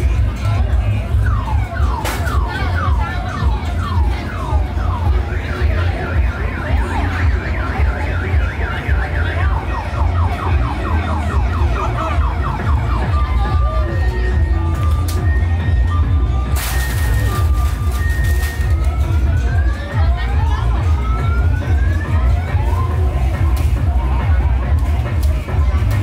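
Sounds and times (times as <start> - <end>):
electronic alarm siren: 1.3 - 14.6.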